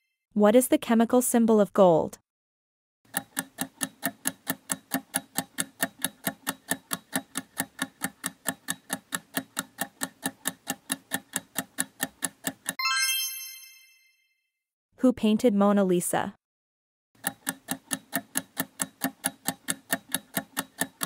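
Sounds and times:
clock-like ticking: 3.1s - 12.8s, 17.2s - 21.0s.

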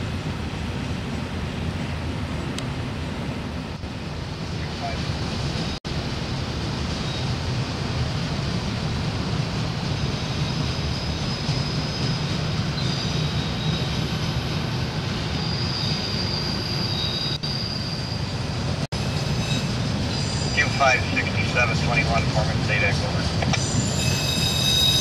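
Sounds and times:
train wheels rumbling on rail: 0.0s - 25.0s
high-pitched wheel squeal: 10.2s - 14.4s, 15.2s - 18.5s, 19.3s - 20.7s, 23.6s - 25.0s.

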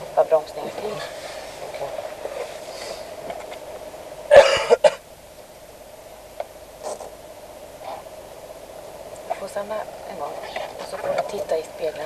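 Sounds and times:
person coughing: 4.3s - 5.0s.

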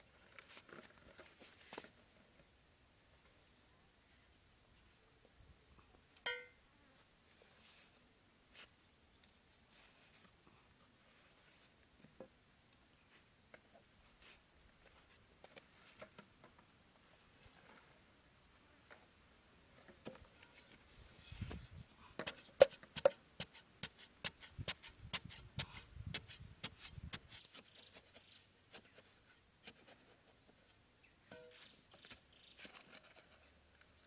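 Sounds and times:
knife chopping into dry soil: 22.2s - 30.0s
hatchet blade scratching dirt: 22.2s - 30.2s.

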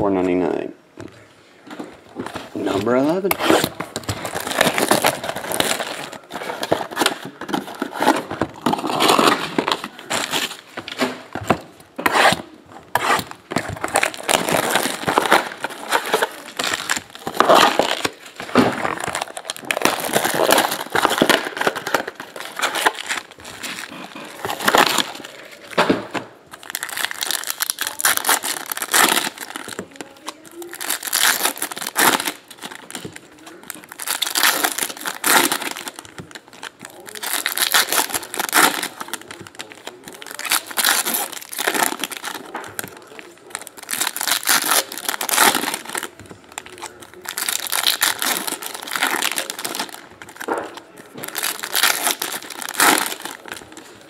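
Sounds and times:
plastic wrap and foil crinkling: 1.6s - 54.0s.

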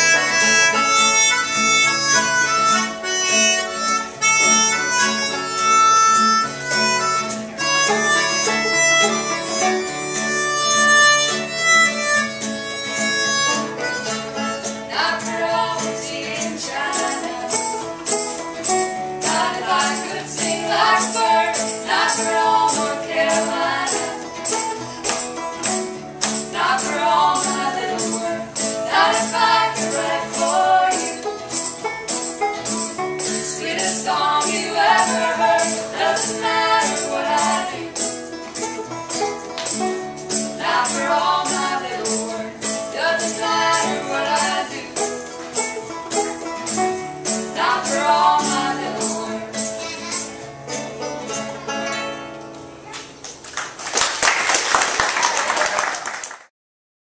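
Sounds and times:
melodica melody: 0.0s - 15.7s
banjo: 0.0s - 53.2s
strummed acoustic guitar: 0.0s - 53.2s
women singing: 14.8s - 17.9s, 19.2s - 24.6s, 26.4s - 31.4s, 33.3s - 38.2s, 40.6s - 45.3s, 47.3s - 49.8s.

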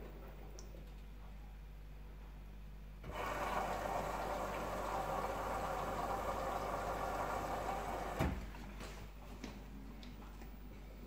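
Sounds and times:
washing machine running: 3.0s - 8.8s.

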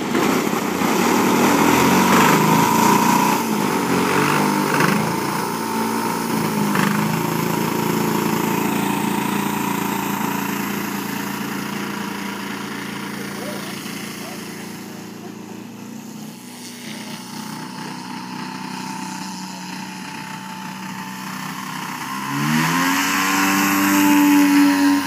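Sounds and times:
model plane engine running: 0.0s - 25.0s.

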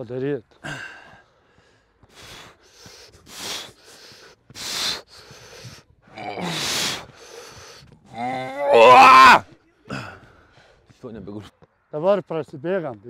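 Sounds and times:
man breathing hard: 0.6s - 8.0s.

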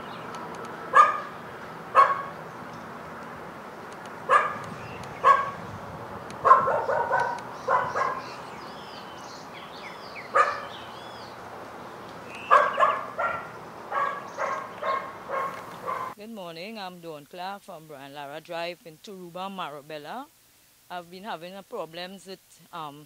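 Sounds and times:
dog barking: 0.9s - 1.3s, 1.9s - 2.4s, 4.3s - 5.6s, 6.4s - 8.4s, 10.2s - 10.8s, 12.4s - 16.2s.

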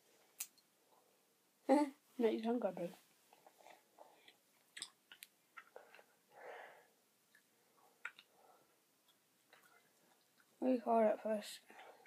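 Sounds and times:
wet mouth clicks: 4.2s - 6.0s, 7.3s - 8.3s
soft breath: 5.7s - 8.8s
chewing gum: 7.3s - 8.4s, 9.0s - 10.6s.

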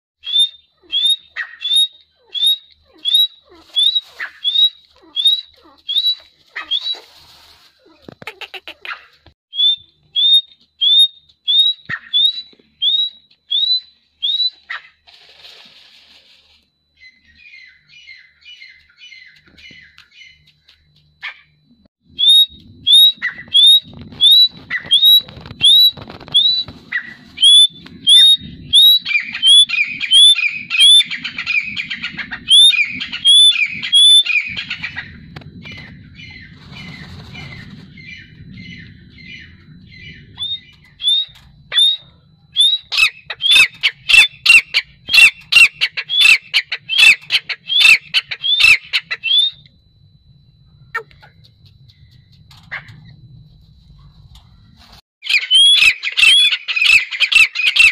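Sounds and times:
francolin calling: 22.2s - 49.8s.

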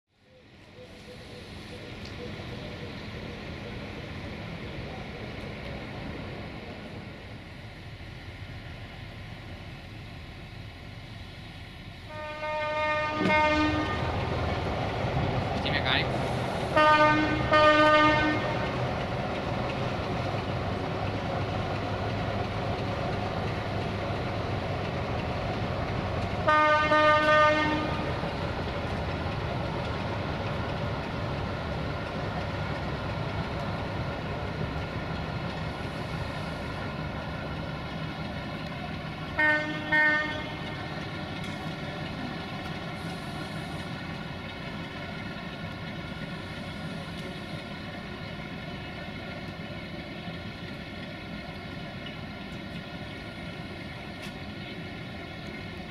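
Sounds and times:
locomotive horn blasts: 12.1s - 14.2s, 16.7s - 18.8s, 26.4s - 28.1s, 39.4s - 40.6s.

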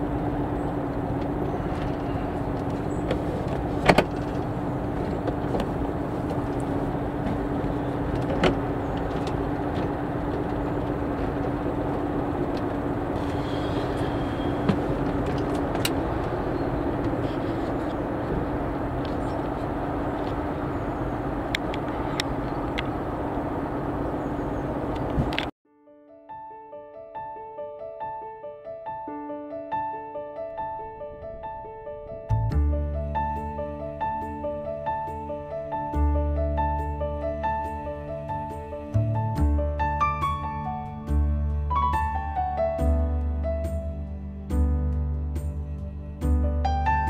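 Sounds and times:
boat engine idling: 0.0s - 25.5s.

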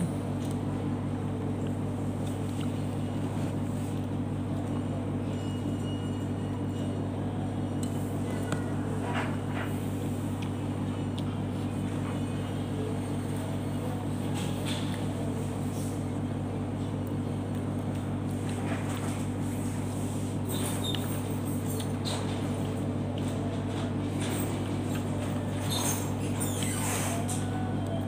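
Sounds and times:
low machine hum: 0.0s - 28.0s.

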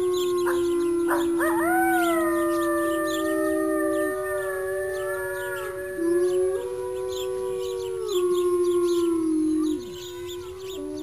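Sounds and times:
wolves howling: 0.0s - 11.0s.

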